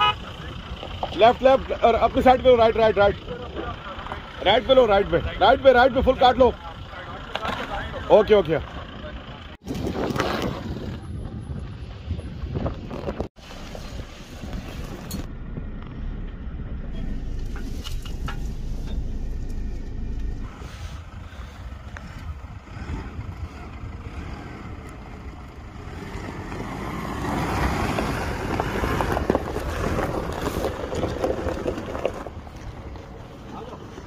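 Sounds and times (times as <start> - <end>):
truck engine rumble: 0.0 - 34.0
wind buffeting microphone: 9.6 - 15.9, 16.7 - 34.0.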